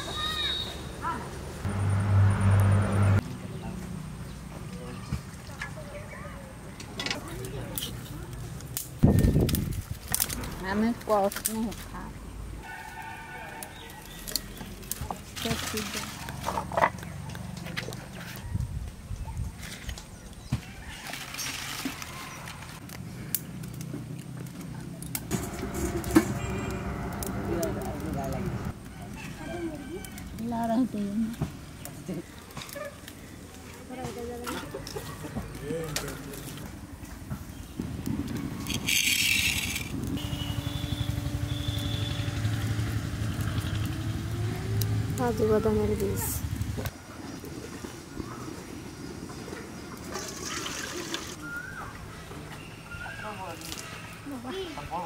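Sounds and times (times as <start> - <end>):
leaves and twigs crackling in fire: 7.2 - 55.0
engine running with pulsing drone: 40.2 - 45.2.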